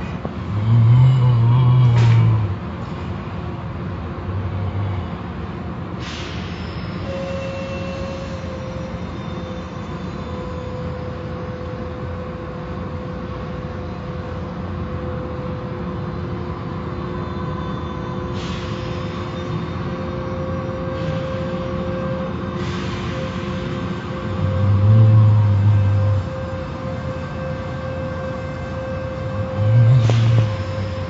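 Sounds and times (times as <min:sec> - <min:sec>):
hiss: 0:06.0 - 0:09.9, 0:18.3 - 0:31.0
steady hum: 0:20.4 - 0:31.0
car wash machinery rumbling: 0:21.6 - 0:31.0.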